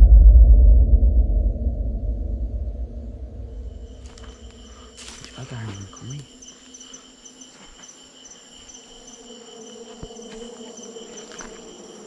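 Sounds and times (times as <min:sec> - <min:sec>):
cricket chirps: 0:01.9 - 0:12.0
crickets trilling: 0:03.1 - 0:12.0
faint footsteps: 0:03.6 - 0:12.0.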